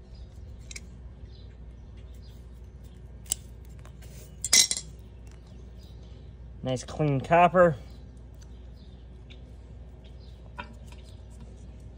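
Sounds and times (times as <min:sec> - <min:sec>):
metallic clinks and scrapes: 0:00.4 - 0:01.0, 0:02.8 - 0:05.0.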